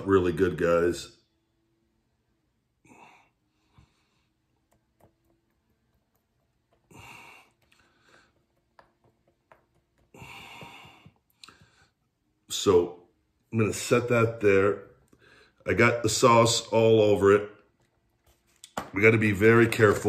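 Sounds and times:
man exhaling heavily: 0:06.9 - 0:08.3, 0:10.1 - 0:11.9.

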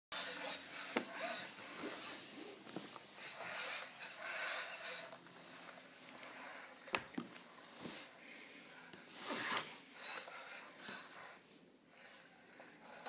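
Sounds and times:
robot joint motors whirring: 0:00.2 - 0:02.3, 0:03.2 - 0:07.0, 0:10.0 - 0:13.0.

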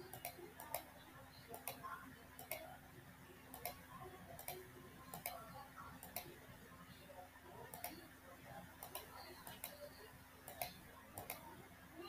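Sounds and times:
computer mouse clicking: 0:00.0 - 0:00.9, 0:01.5 - 0:01.8, 0:02.4 - 0:02.7, 0:03.5 - 0:03.8, 0:04.4 - 0:06.4, 0:07.6 - 0:08.0, 0:08.8 - 0:11.5
faint steady hum: 0:00.0 - 0:12.0.

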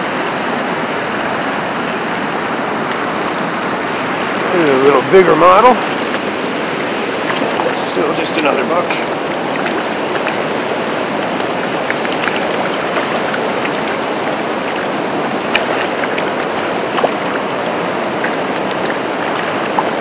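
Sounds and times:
river current flowing: 0:00.0 - 0:20.0
fish splashing at surface: 0:05.8 - 0:20.0.

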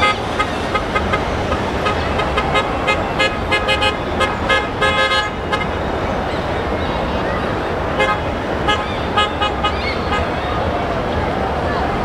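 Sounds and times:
car horns honking: 0:00.0 - 0:05.8, 0:07.9 - 0:10.4
low rumble of engines and tyres: 0:00.0 - 0:12.0.

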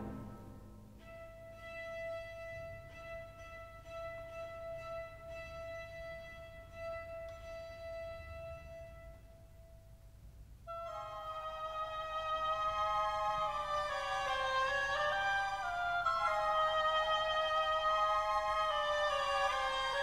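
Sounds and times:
orchestral high note held: 0:00.0 - 0:01.1.

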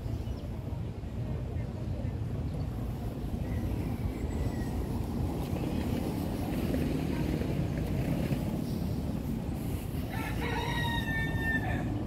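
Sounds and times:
steady low rumble: 0:00.0 - 0:12.0
rooster crowing: 0:10.1 - 0:12.0.

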